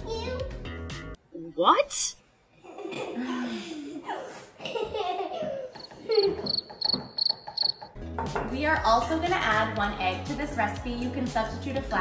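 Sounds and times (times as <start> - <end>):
children giggling and laughing: 2.6 - 7.0
woman's voice: 8.5 - 12.0.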